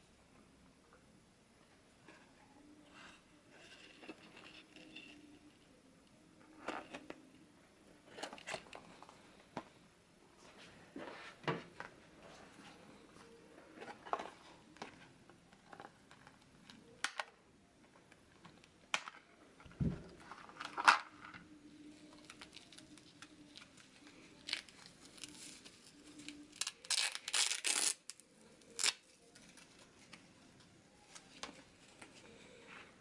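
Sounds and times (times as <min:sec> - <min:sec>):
velcro ripping: 0:26.5 - 0:28.2, 0:28.8 - 0:29.0.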